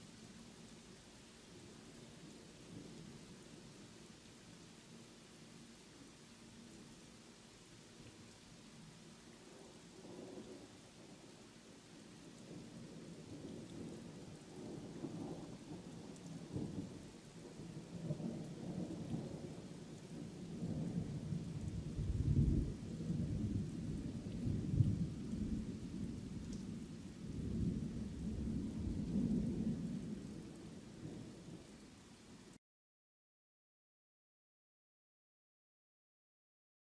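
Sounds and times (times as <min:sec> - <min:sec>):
heavy rain falling: 0:00.0 - 0:32.6
thunder rumbling: 0:20.5 - 0:31.6.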